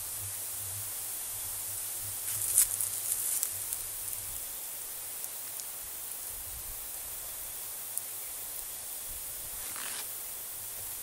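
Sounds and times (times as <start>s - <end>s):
leaves rustling and crackling: 0.0s - 11.0s
steady high hiss: 0.0s - 11.0s.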